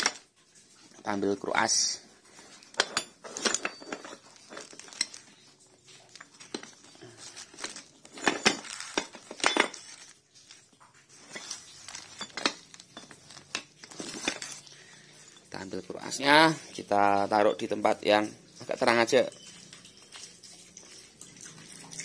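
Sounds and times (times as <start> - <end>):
metal parts knocking and clinking: 2.7 - 10.6, 11.2 - 16.0
plastic bags crinkling: 3.3 - 17.9.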